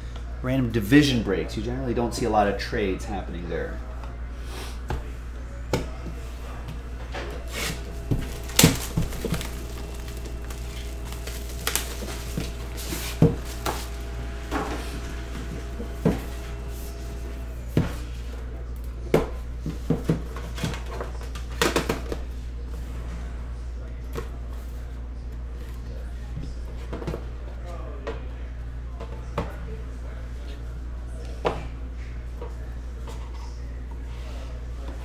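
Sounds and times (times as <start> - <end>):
low steady hum: 0.0 - 21.4.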